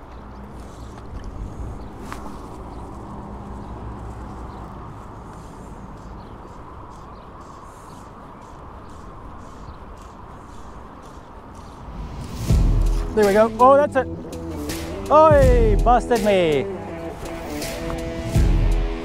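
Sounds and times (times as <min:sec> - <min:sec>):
low rumble on microphone: 0:11.7 - 0:13.2.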